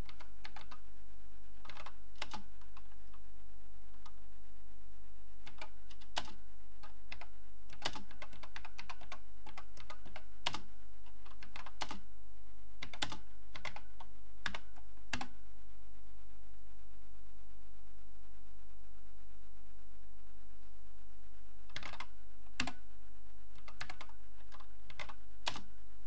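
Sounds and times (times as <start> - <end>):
steady electrical hum: 0.0 - 26.0
computer keyboard keystroke clicks: 5.5 - 10.6, 12.8 - 13.8, 21.7 - 22.8, 23.6 - 25.7.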